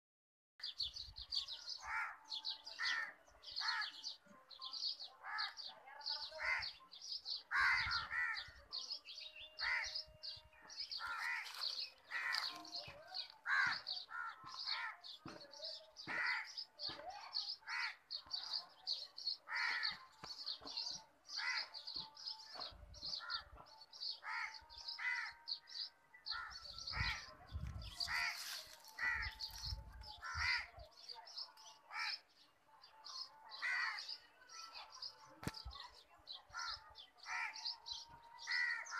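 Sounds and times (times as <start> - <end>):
small birds chirping: 0.6 - 38.9
crows cawing: 6.4 - 6.7, 7.5 - 8.5, 9.6 - 10.0, 11.0 - 12.6, 13.5 - 15.1, 16.1 - 16.6, 17.7 - 18.0, 19.5 - 20.0, 24.2 - 25.4, 28.1 - 29.5, 30.2 - 30.7, 33.6 - 34.1, 36.6 - 37.6.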